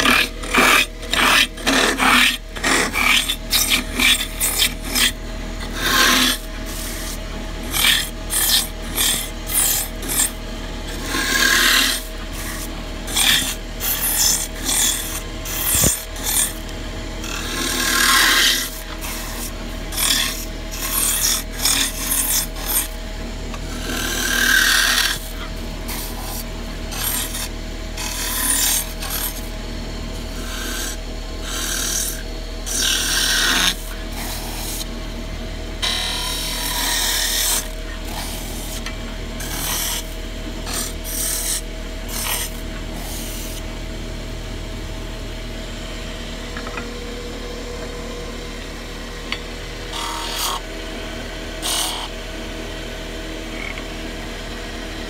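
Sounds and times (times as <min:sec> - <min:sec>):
tool scraping wood: 0:00.0 - 0:29.5, 0:30.2 - 0:34.9, 0:35.8 - 0:43.7, 0:49.9 - 0:50.7, 0:51.6 - 0:52.1
lathe motor whine: 0:00.0 - 0:55.0.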